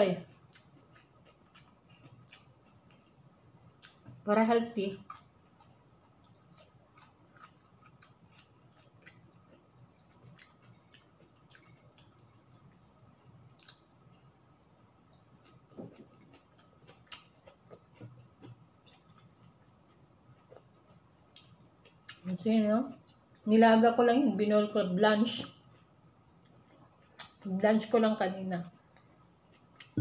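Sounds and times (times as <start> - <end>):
person chewing: 0.2 - 4.2, 5.0 - 22.3, 25.5 - 27.4, 28.8 - 30.0
mouth clicks and smacks: 5.1 - 12.6, 13.5 - 13.9, 29.4 - 30.0.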